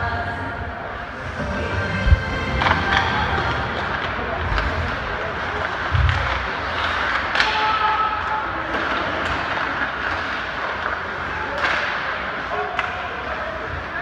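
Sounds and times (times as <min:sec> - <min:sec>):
crowd din in ice rink: 0:00.0 - 0:14.0
low thud: 0:01.9 - 0:03.1
puck and sticks knocking boards: 0:11.6 - 0:13.0.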